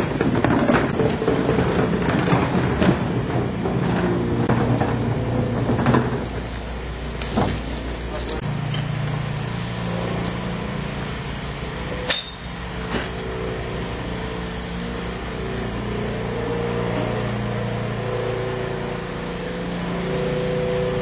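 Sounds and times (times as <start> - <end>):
low mechanical hum: 0.0 - 21.0
glass or metal clinking: 8.6 - 9.3, 12.1 - 13.5.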